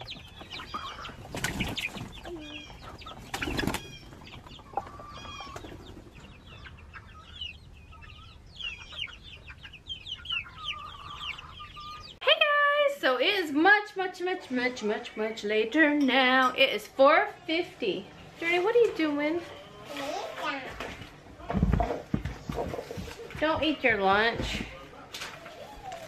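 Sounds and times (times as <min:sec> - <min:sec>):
chicks cheeping: 0:00.0 - 0:12.2, 0:24.7 - 0:26.0
chickens flapping wings: 0:01.0 - 0:02.3, 0:02.9 - 0:04.2.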